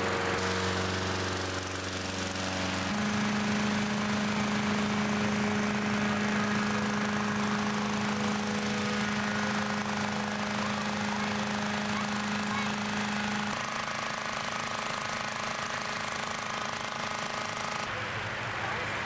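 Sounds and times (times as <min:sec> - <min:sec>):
petrol engine inflator fans: 0:00.0 - 0:19.0.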